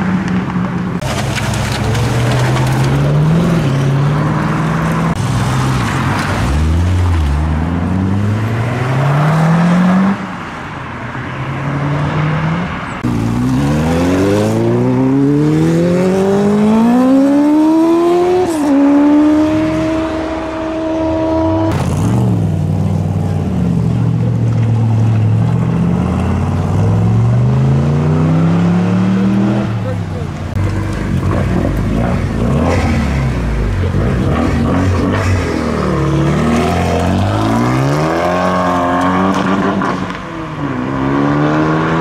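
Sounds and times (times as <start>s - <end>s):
car engines pulling away: 0.0s - 42.0s
car accelerating hard: 11.8s - 22.6s, 25.6s - 42.0s.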